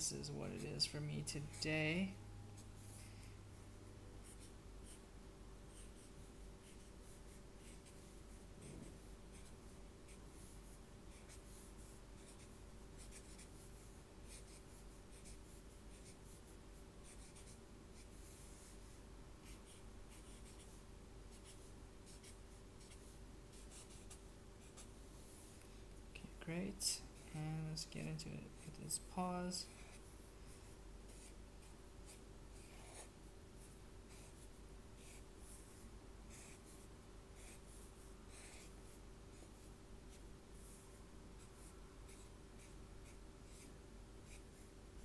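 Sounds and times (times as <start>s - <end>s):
steady low hum: 0.0s - 45.0s
marker strokes on paper: 5.7s - 25.7s, 26.8s - 44.7s.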